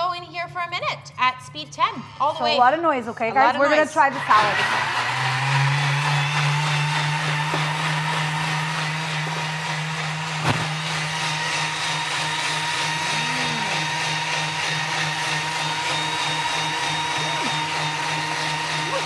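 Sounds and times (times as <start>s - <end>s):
food processor motor blending: 4.0s - 19.0s.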